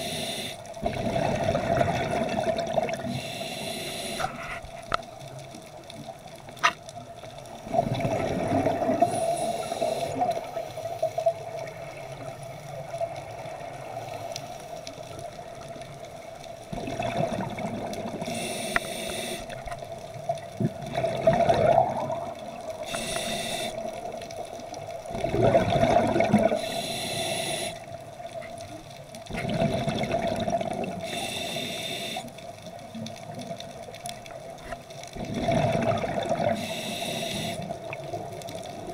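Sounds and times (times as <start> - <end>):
regulator breath hiss: 0.0 - 0.7, 3.1 - 4.6, 9.0 - 11.2, 18.3 - 19.6, 22.8 - 23.9, 26.6 - 27.9, 31.0 - 32.4, 36.5 - 37.8
exhaled bubbles gushing: 0.8 - 3.1, 7.6 - 10.5, 16.7 - 18.4, 20.4 - 23.2, 24.0 - 26.7, 29.3 - 31.1, 35.2 - 36.6.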